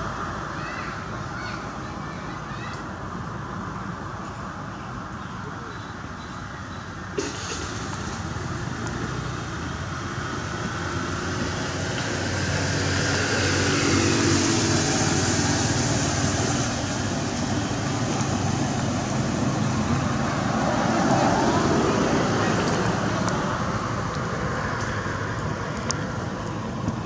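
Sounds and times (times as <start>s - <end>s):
vehicles driving past: 0.0s - 27.0s.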